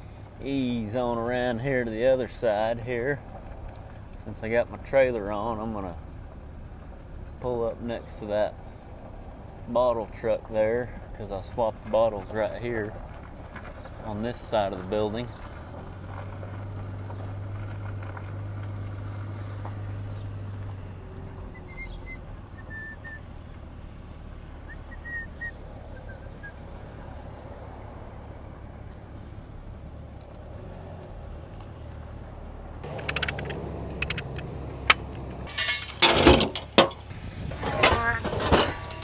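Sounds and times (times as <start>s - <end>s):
metallic chain clanks and rattles: 35.4s - 37.1s, 37.7s - 39.0s.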